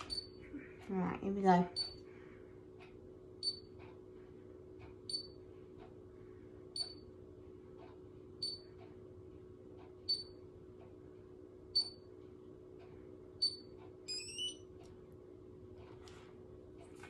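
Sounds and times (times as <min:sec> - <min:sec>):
short high electronic beeps: 0:13.4 - 0:14.6.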